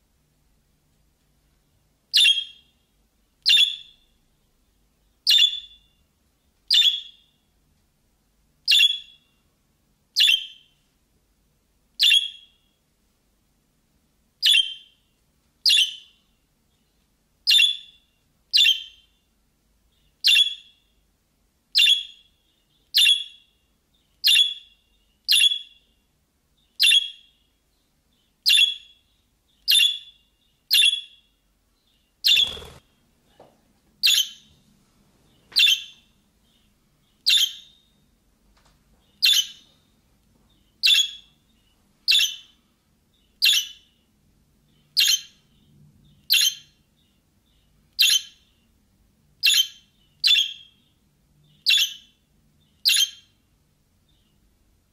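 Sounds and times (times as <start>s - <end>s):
budgerigar chirping: 2.1s - 2.7s, 3.4s - 4.0s, 5.3s - 5.9s, 6.7s - 7.3s, 8.7s - 9.3s, 10.2s - 10.7s, 12.0s - 12.6s, 14.4s - 15.0s, 15.7s - 16.2s, 17.5s - 19.1s, 20.2s - 20.8s, 21.8s - 22.3s, 23.0s - 23.6s, 24.2s - 25.8s, 26.8s - 27.3s, 28.4s - 29.0s, 29.7s - 31.2s, 32.2s - 32.8s, 34.0s - 34.5s, 35.6s - 36.1s, 37.2s - 37.9s, 39.2s - 39.6s, 40.8s - 41.4s, 42.1s - 42.6s, 43.4s - 44.0s, 45.0s - 45.4s, 46.3s - 46.8s, 47.6s - 48.6s, 49.4s - 50.9s, 51.6s - 52.2s, 52.8s - 53.4s.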